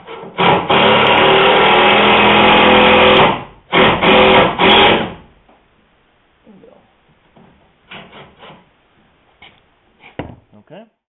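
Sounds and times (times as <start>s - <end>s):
drill-driver driving wood screw: 0.0s - 5.2s.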